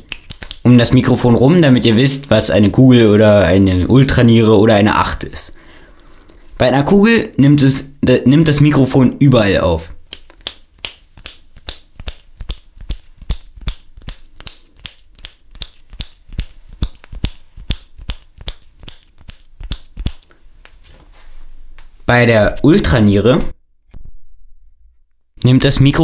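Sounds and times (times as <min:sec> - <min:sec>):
finger snaps: 0:00.0 - 0:00.6, 0:10.1 - 0:20.8.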